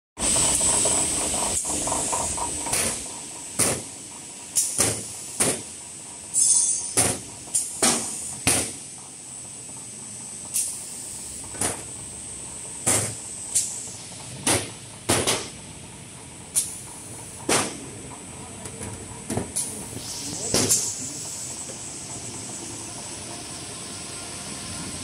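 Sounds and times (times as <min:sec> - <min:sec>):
machine hum with high whine: 0:00.2 - 0:25.0
pneumatic air hisses: 0:04.5 - 0:08.9, 0:10.5 - 0:11.8, 0:19.6 - 0:22.8.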